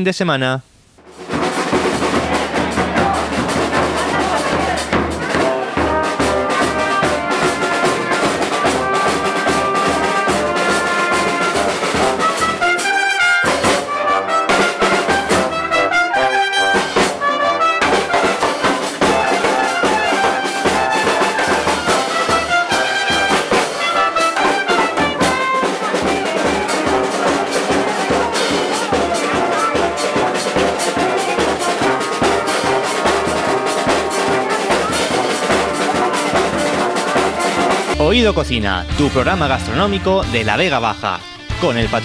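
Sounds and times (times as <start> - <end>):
brass band playing: 1.0 - 42.0
bass drum beat: 1.3 - 10.6, 37.9 - 42.0.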